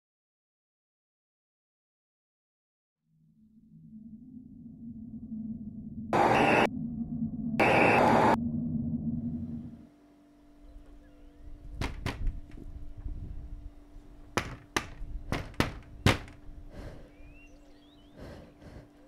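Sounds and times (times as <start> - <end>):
faint steady hum: 3.4 - 19.0
sharp knocks: 11.8 - 12.4, 14.4 - 16.4.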